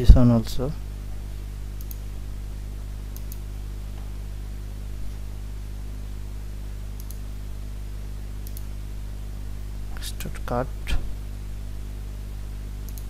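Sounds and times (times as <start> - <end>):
low electrical hum: 0.0 - 13.0
computer mouse clicking: 1.8 - 2.0, 3.1 - 3.5, 7.0 - 7.2, 8.4 - 8.7.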